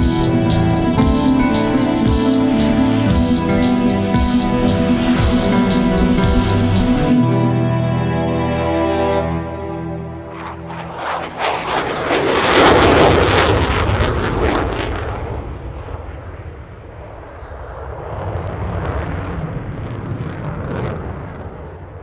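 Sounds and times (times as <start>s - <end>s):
fighter jet afterburner roar: 0.0s - 8.6s, 9.2s - 22.0s.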